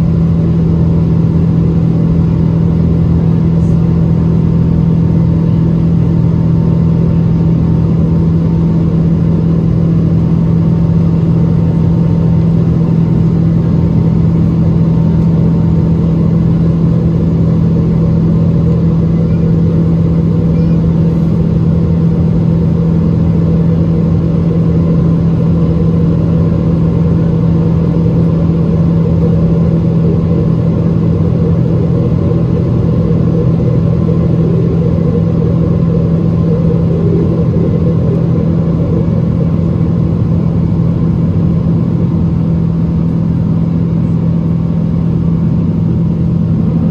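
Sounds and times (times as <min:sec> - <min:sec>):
jet engine drone in cabin: 0:00.0 - 0:46.9.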